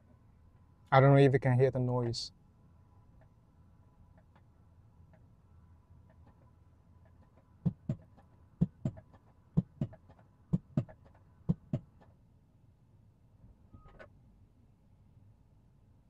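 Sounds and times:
faint machinery hum: 0.0 - 16.0
dull knocks: 7.7 - 11.9.

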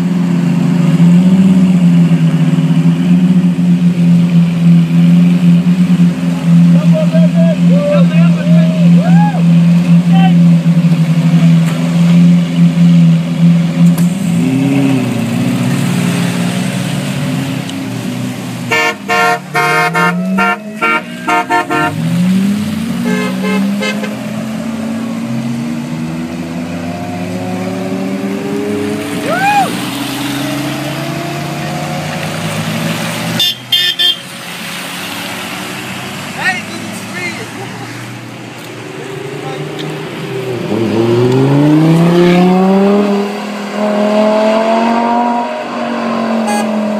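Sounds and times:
car engines revving: 0.0 - 46.9
car horns honking: 18.6 - 24.4, 33.3 - 34.4, 46.3 - 46.9.

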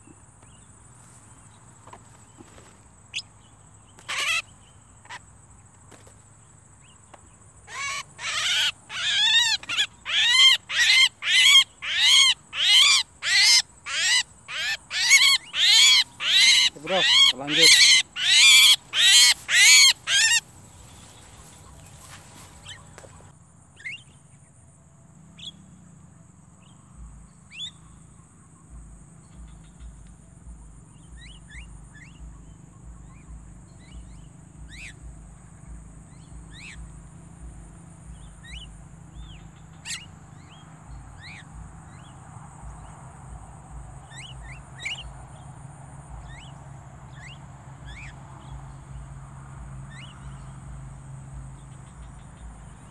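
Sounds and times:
bird squawking harshly: 4.0 - 4.5, 7.7 - 20.5.

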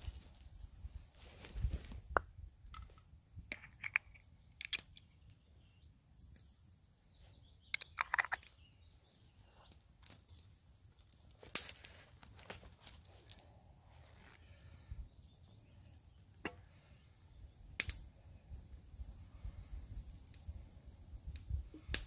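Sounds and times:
crunchy rustles of camp gear: 0.0 - 2.1, 7.2 - 16.9
faint bird chirps: 4.4 - 9.8.

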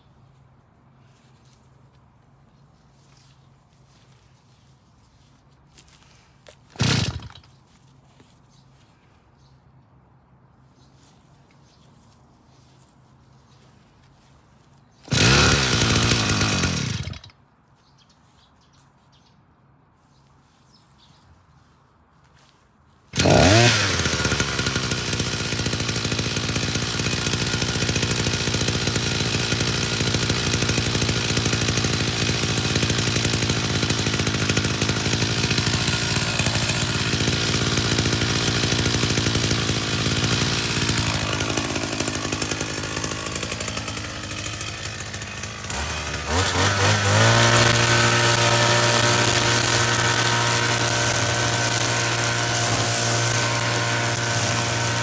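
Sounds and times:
string trimmer engine: 5.8 - 8.3, 15.0 - 17.4, 23.1 - 55.0.

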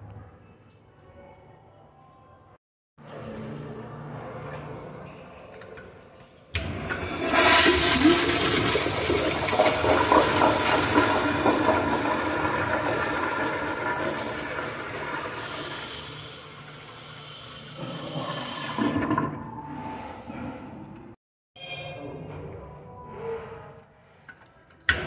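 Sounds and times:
toilet flushing: 6.6 - 19.9.

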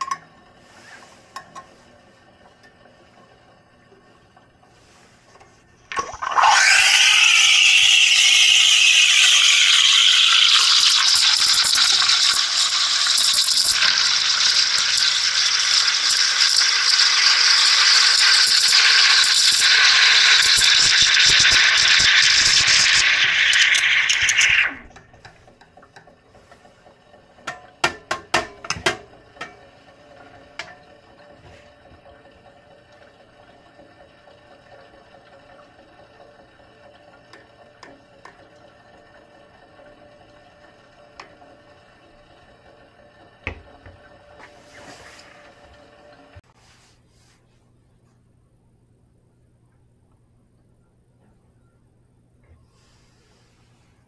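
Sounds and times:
steam wand hissing and whistling: 6.3 - 24.9.

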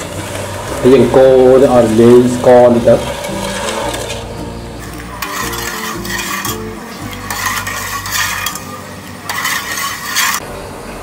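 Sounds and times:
ladle scraping pot: 0.0 - 10.4
water swishing in saucepan: 5.2 - 10.4.

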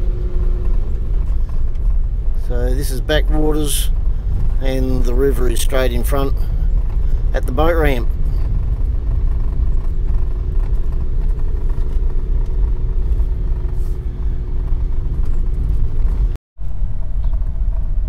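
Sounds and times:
car engine and tyres rumbling: 0.0 - 18.0.

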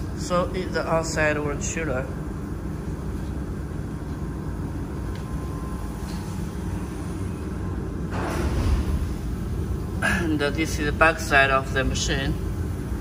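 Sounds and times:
water chiller humming: 0.0 - 13.0.

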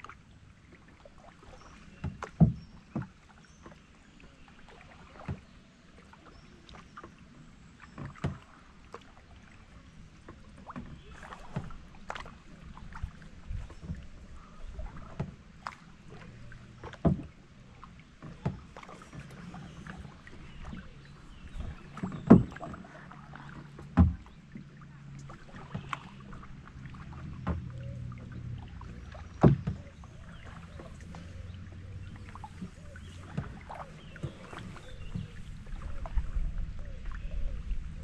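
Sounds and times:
paddle strokes in water: 0.0 - 38.0
paddle knocking against plastic kayak: 1.8 - 3.8, 5.2 - 5.5, 7.9 - 9.1, 10.2 - 36.6.

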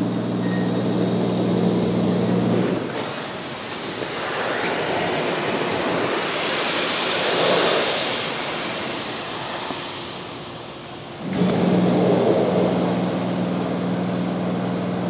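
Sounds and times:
car wash water spraying: 0.9 - 15.0.

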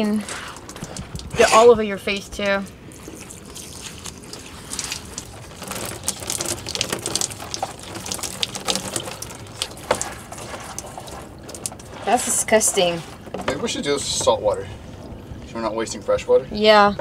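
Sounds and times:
water splashing onto deck: 0.6 - 13.5
shower water spraying on wetsuit: 2.9 - 12.2.

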